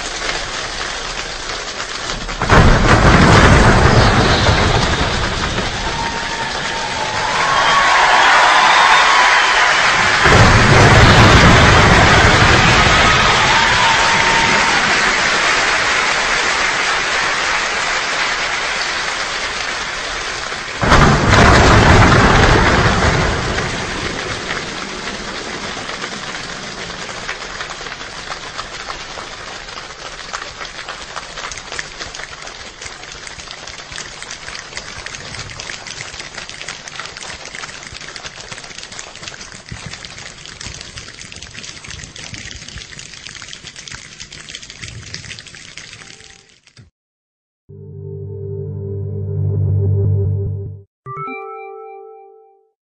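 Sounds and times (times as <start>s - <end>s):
hand percussion rain patter: 0.0s - 10.4s, 23.4s - 46.8s
deep thunder rumble: 2.2s - 7.9s, 10.0s - 15.1s, 20.8s - 27.4s.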